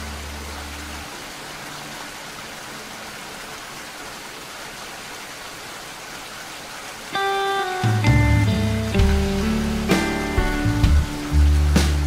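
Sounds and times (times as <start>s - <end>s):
steady rain falling: 0.0s - 12.0s
low music notes: 7.2s - 12.0s.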